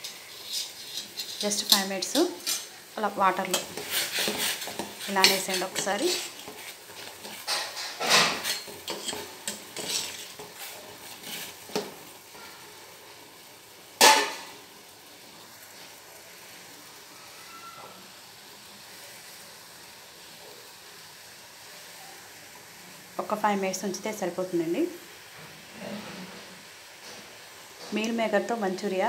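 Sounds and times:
skimmer scraping a steel pot: 0.0 - 2.7, 3.4 - 11.6
water boiling: 0.0 - 29.0
sharp metal clank: 14.0 - 14.5.

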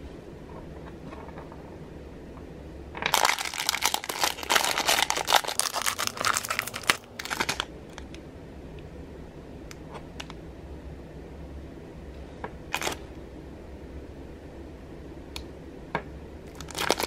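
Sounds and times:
plastic bag crinkling: 3.0 - 7.7, 16.5 - 17.0.

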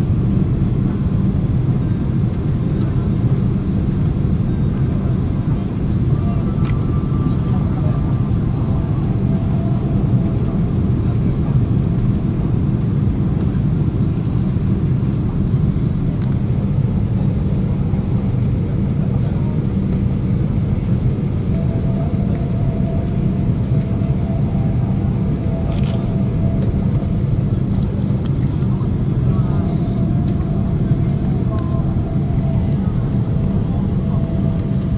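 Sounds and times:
airliner cabin rumble: 0.0 - 34.9
faint higher hum: 0.0 - 34.9.

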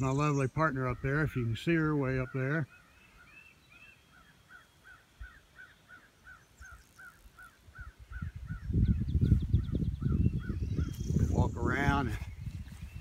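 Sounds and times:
wind buffeting microphone: 7.7 - 13.0.

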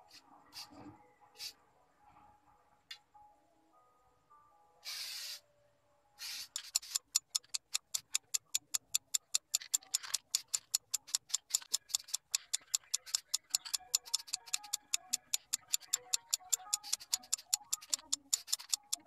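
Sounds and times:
spray can ball rattling: 4.8 - 5.4
spray can hissing: 4.8 - 5.4, 6.2 - 8.2.

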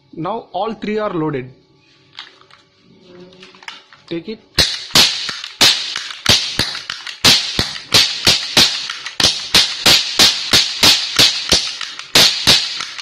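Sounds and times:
cap pistols firing sharp cracks: 4.6 - 13.0.

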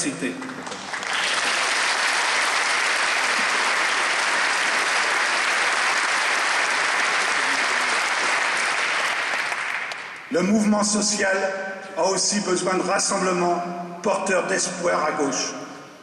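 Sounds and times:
audience applauding: 0.0 - 10.3.

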